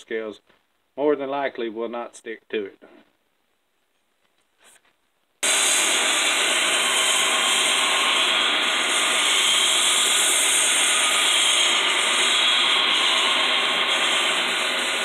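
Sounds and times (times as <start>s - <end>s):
belt grinder grinding steel: 5.4s - 15.0s.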